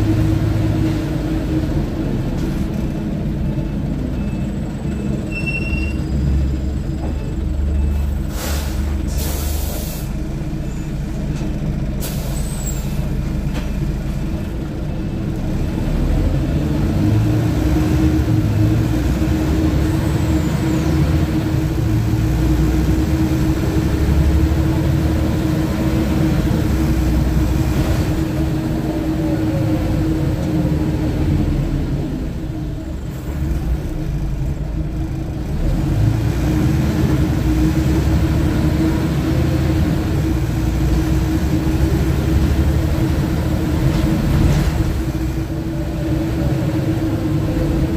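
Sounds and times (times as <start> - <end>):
bus diesel engine running: 0.0 - 47.9
compressed air hisses: 8.3 - 10.1.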